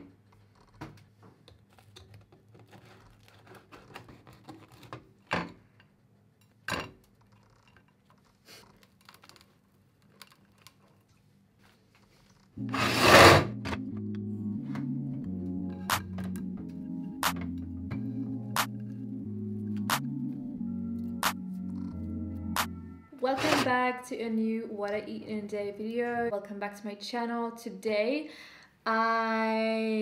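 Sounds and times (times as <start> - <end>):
music: 12.6 - 24.0.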